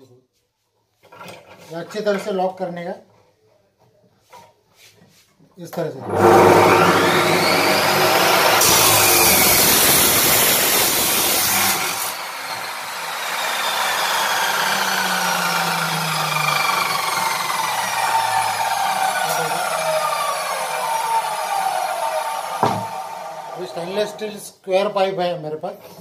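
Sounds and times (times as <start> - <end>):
cut-off saw grinding metal pipe: 6.0 - 24.2
motor whine coasting down: 6.0 - 24.2.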